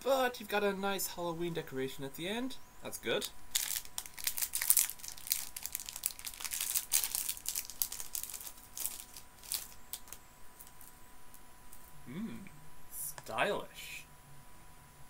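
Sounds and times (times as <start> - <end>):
plastic wrapper crinkling: 3.5 - 11.9.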